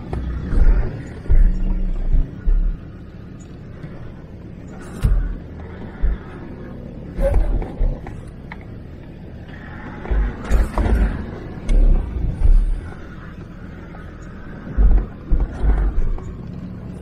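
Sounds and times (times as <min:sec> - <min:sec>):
heavy low thumps: 0:00.0 - 0:03.2, 0:04.9 - 0:08.3, 0:10.0 - 0:13.2, 0:14.4 - 0:16.4
diesel engine running: 0:00.0 - 0:17.0.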